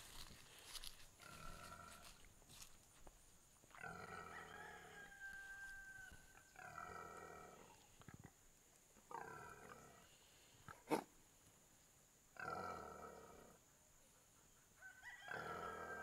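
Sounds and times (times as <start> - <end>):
pig growling: 3.8 - 4.5, 6.6 - 8.3, 12.4 - 13.6.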